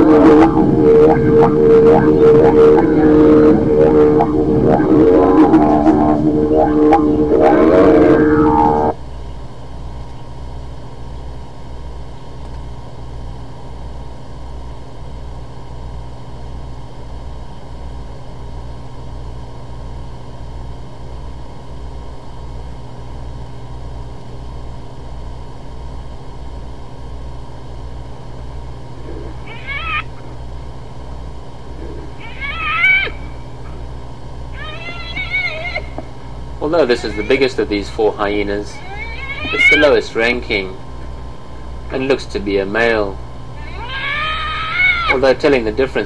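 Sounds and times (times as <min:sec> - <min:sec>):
didgeridoo drone: 0:00.0 - 0:09.0, 0:29.0 - 0:30.4, 0:31.6 - 0:43.0, 0:43.6 - 0:46.0
hyena squealing: 0:00.0 - 0:09.0, 0:29.0 - 0:30.4, 0:31.8 - 0:33.9, 0:34.5 - 0:40.8, 0:43.6 - 0:45.6
steady throbbing hum: 0:00.0 - 0:14.9, 0:22.7 - 0:46.0.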